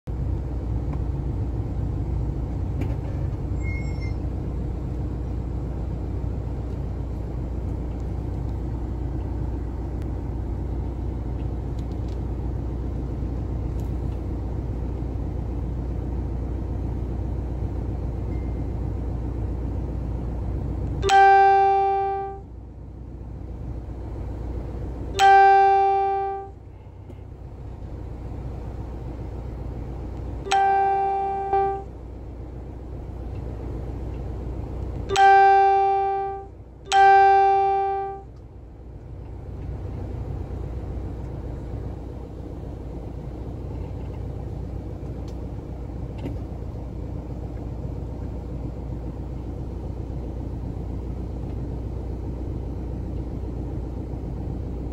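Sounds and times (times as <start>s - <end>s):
car engine low rumble: 0.0s - 54.9s
car horn honks: 21.0s - 22.5s, 25.1s - 26.7s, 30.4s - 31.9s, 35.1s - 38.3s.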